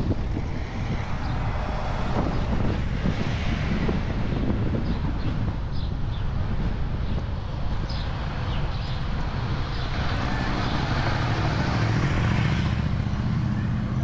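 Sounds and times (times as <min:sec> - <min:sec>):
rush of noise: 0:00.0 - 0:14.0
car engine hum: 0:09.1 - 0:14.0.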